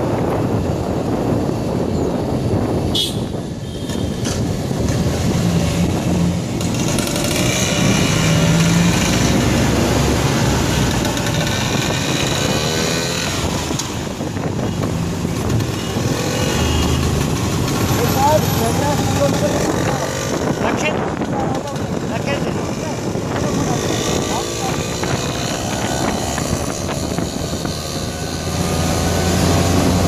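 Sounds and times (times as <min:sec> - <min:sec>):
passing vehicles: 0:00.0 - 0:30.0
small motorbike engines running: 0:15.3 - 0:28.4.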